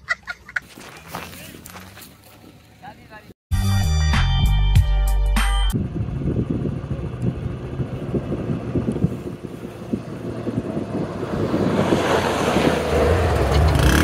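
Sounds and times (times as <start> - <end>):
truck engine passing: 5.8 - 14.0
wind buffeting microphone: 5.8 - 14.0.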